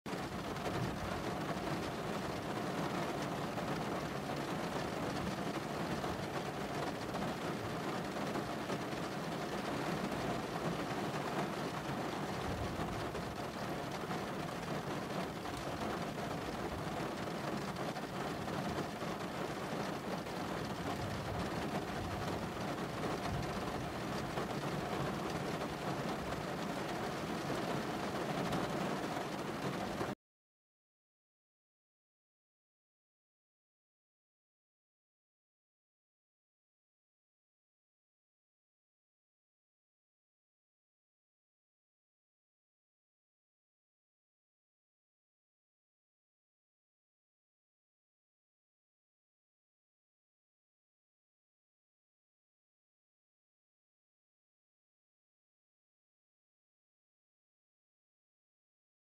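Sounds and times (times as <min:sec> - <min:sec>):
rain on a car roof: 0:00.1 - 0:30.2.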